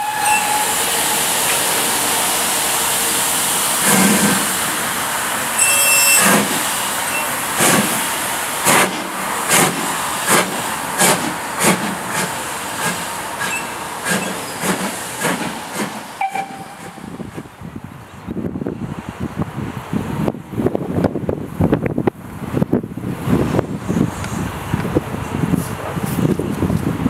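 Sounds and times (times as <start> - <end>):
steam whistle: 0.0 - 1.5, 5.6 - 7.3, 16.2 - 17.1
steam hiss from cylinders: 0.0 - 17.2
steam locomotive exhaust beats: 0.0 - 27.0.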